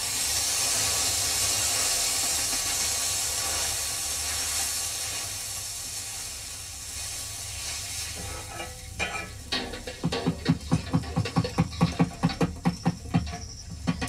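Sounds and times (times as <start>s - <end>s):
steam hissing off hot griddle: 0.0s - 14.0s
twigs scrubbing griddle: 6.9s - 14.0s.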